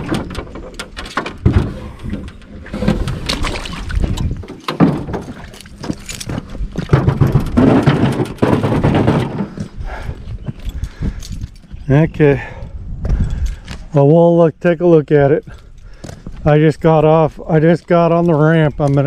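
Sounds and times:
boat hull scraping over concrete: 0.0 - 10.1.

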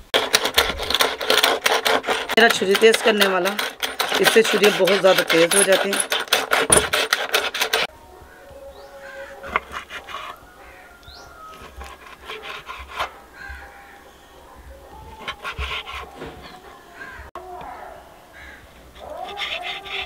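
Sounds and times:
blade tapping wooden board: 0.2 - 7.9
faint bird calls: 13.2 - 15.3.

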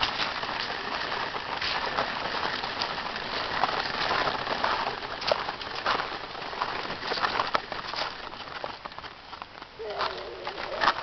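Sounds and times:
footsteps crunching on gravel: 0.0 - 11.0.

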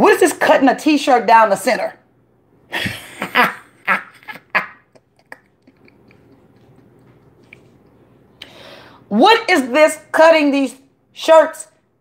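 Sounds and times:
low room noise: 0.0 - 12.0
person making laugh-like sounds: 2.7 - 7.4.

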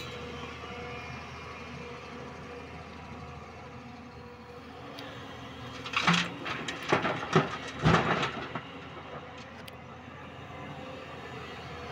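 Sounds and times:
excavator diesel engine running: 0.0 - 11.9
rock clattering into truck body: 5.8 - 9.7.

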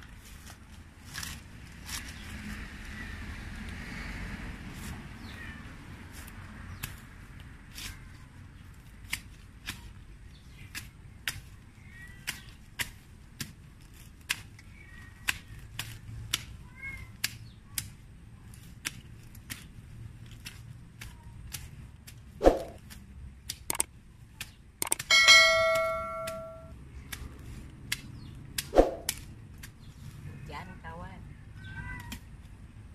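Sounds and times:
hand tool snipping grass: 17.2 - 29.9.

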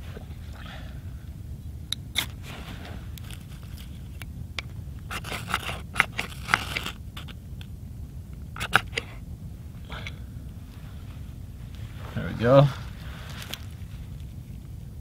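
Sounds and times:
knife scraping wood: 5.1 - 7.4, 8.6 - 9.2.

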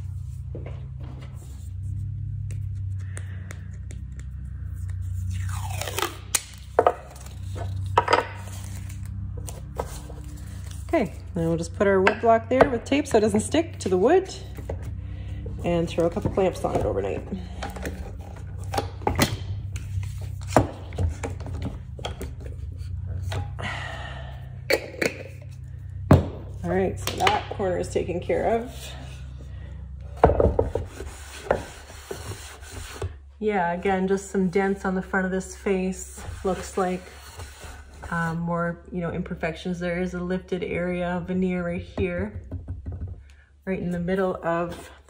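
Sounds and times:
steady low hum: 0.0 - 42.6
masking tape tearing off roll: 5.2 - 7.8.

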